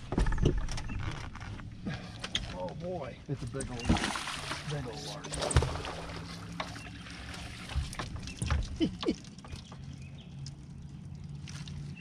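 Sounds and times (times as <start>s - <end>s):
low steady hum: 0.0s - 12.0s
water trickling: 3.5s - 12.0s
fish splashing at water surface: 3.8s - 4.8s, 5.4s - 8.6s.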